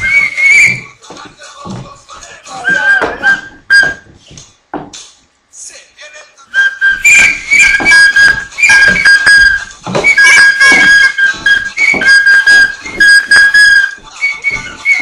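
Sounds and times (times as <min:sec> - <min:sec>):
shrill whistle blowing: 0:00.0 - 0:00.9, 0:02.5 - 0:04.1, 0:06.5 - 0:15.0
upbeat dance music: 0:00.0 - 0:03.6.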